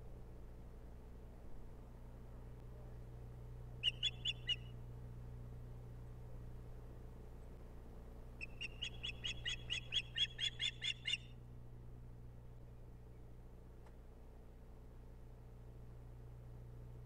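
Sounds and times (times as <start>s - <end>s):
osprey whistled chirps: 3.8s - 4.7s, 8.4s - 11.3s.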